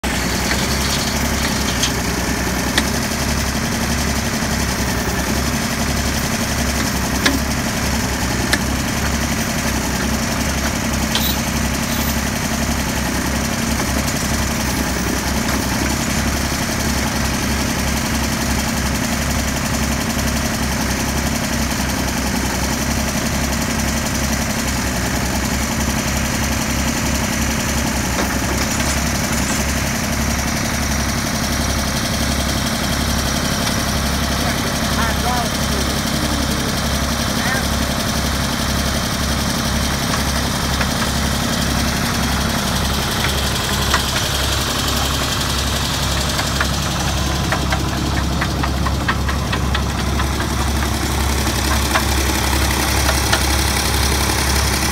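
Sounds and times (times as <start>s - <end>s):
engine throbbing: 0.0s - 19.0s, 25.6s - 54.9s.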